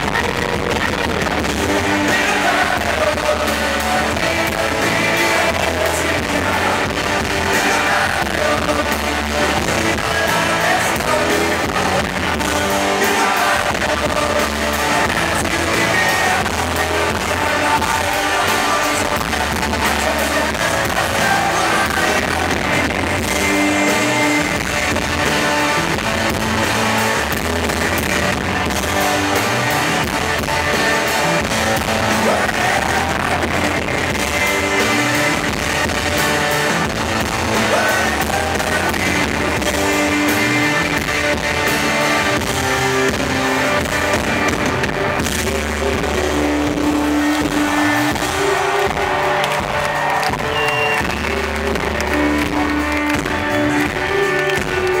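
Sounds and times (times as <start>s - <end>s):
drum kit: 0.0s - 55.0s
lead vocal singing: 0.0s - 55.0s
strummed electric guitar: 0.0s - 55.0s.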